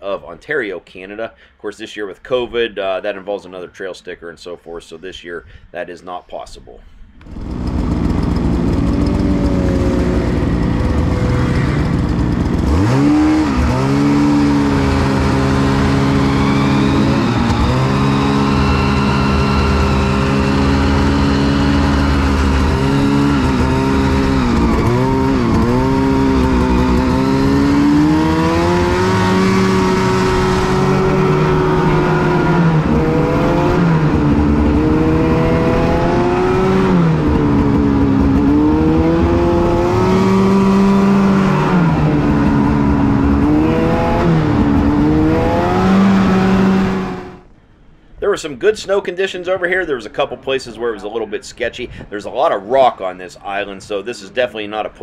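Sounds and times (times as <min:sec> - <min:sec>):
snowmobile engine revving: 0:07.2 - 0:47.5.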